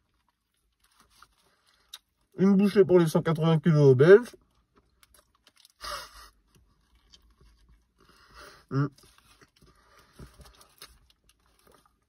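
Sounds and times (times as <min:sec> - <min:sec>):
wet chewing: 0:04.4 - 0:05.8, 0:06.4 - 0:08.3, 0:08.9 - 0:12.0
person humming mmm: 0:08.6 - 0:09.0.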